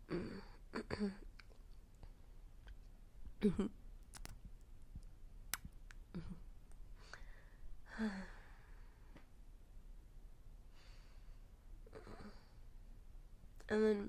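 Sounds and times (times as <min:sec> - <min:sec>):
mouth clicks: 0:04.0 - 0:04.4, 0:05.5 - 0:06.0.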